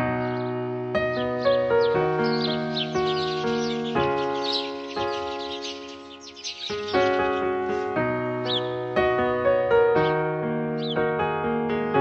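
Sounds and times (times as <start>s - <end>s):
soundtrack music with held notes: 0.0s - 12.0s
high falling chirps: 1.2s - 8.7s.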